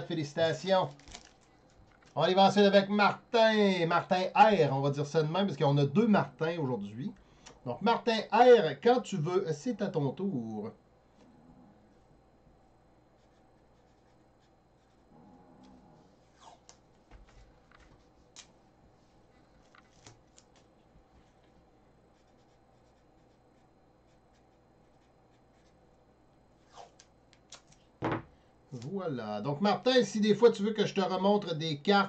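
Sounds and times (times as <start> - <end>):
soft scratching at a desk: 13.1 - 27.1.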